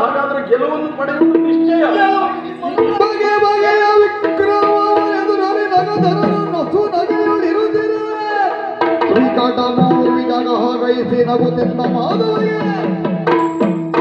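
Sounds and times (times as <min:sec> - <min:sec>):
hand drum strokes: 0:01.2 - 0:07.8
person singing: 0:01.2 - 0:13.1.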